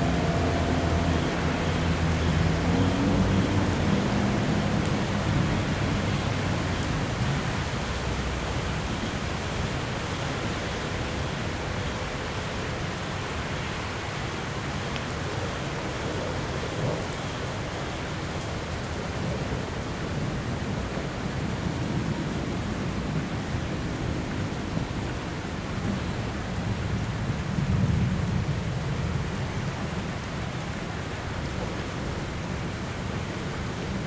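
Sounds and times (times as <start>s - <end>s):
low rumble: 0.0s - 3.4s
rain falling on platform: 0.0s - 34.0s.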